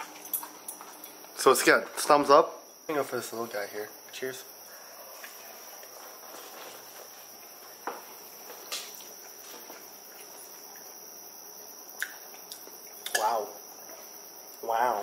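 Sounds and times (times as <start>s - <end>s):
person chewing: 12.0s - 13.2s.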